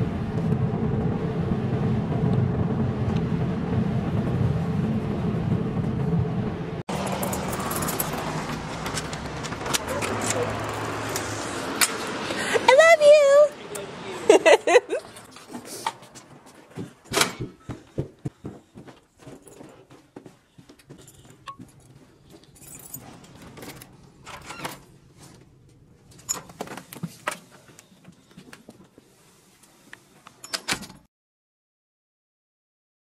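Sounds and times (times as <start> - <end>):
keys jangling: 7.0 - 9.1, 21.0 - 23.9
footsteps on carpeted stairs: 15.0 - 23.5.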